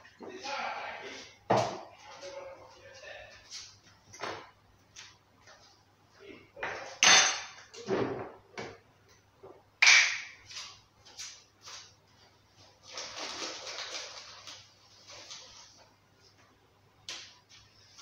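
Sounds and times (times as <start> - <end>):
objects knocking on a counter: 1.5 - 1.9
rustling: 10.4 - 16.5.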